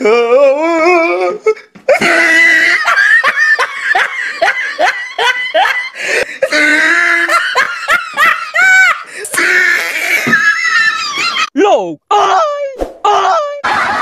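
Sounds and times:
person laughing: 1.9s - 11.5s.

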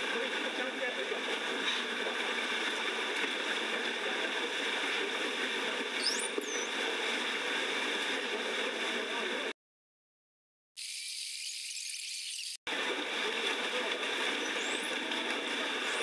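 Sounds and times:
dolphin whistle: 6.0s - 6.7s.

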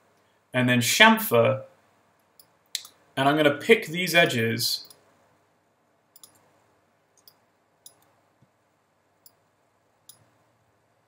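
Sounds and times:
faint computer mouse clicks: 6.2s - 6.5s, 7.2s - 8.1s.

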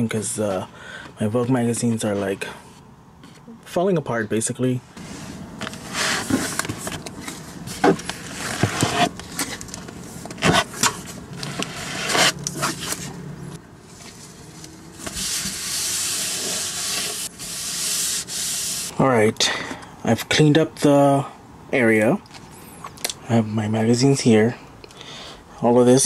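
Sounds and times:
magazines scraping and knocking: 5.6s - 13.1s
paper towel rubbing on shelf: 15.0s - 18.9s.

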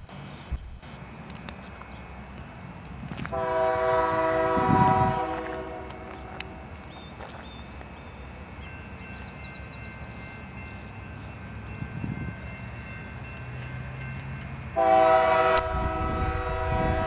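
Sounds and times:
locomotive horn blast: 3.3s - 6.6s, 14.8s - 17.0s.

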